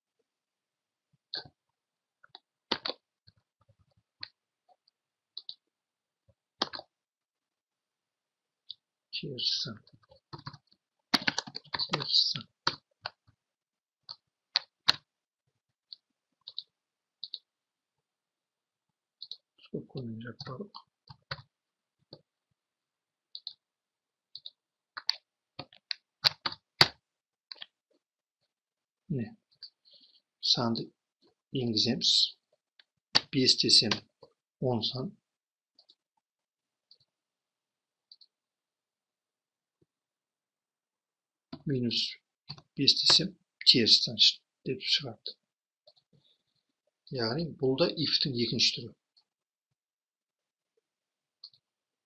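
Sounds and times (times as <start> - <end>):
mouse and keyboard clicks: 2.3 - 3.0, 6.6 - 6.9, 10.0 - 12.1, 14.1 - 15.0, 24.4 - 27.8.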